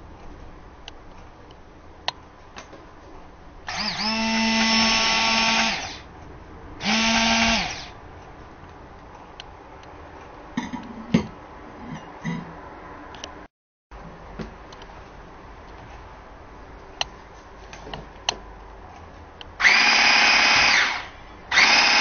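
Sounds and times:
hand blender motor whine: 0:03.7 - 0:06.0, 0:06.8 - 0:07.9, 0:19.6 - 0:22.0.

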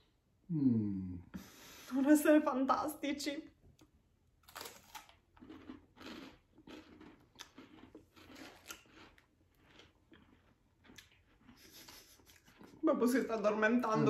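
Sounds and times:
crunching and chewing biscuits: 0:04.4 - 0:12.8.

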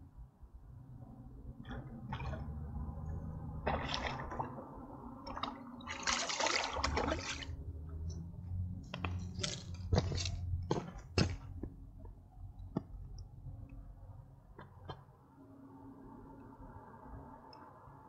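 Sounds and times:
water splashing and sloshing: 0:01.6 - 0:11.8.

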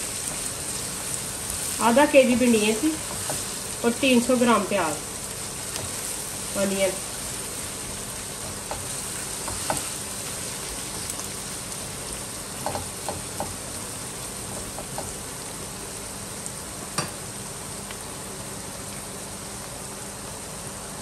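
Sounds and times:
onions sizzling in oil: 0:00.0 - 0:21.0
spatula tapping and scraping: 0:03.0 - 0:03.6, 0:08.4 - 0:10.0, 0:12.6 - 0:13.6, 0:14.5 - 0:15.2.

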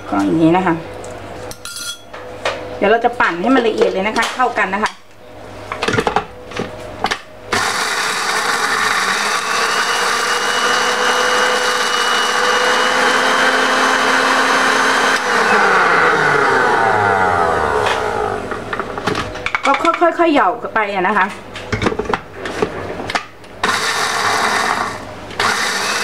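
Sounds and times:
blender motor grinding: 0:07.5 - 0:18.6, 0:23.6 - 0:26.0.

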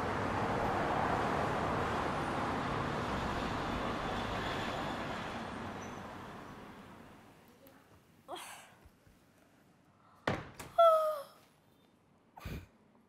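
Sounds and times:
thump: 0:10.2 - 0:10.6
soft breathy sound: 0:12.4 - 0:12.8.

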